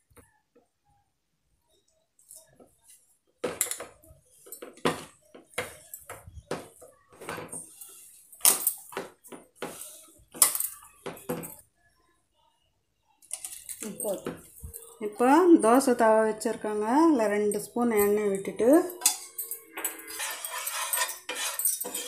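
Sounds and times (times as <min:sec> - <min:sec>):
steel bowl knocking and scraping: 0:19.0 - 0:22.0.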